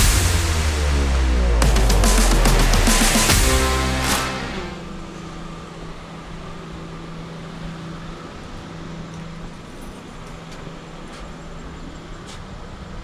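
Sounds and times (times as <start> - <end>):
low even hum: 0.0 - 10.1.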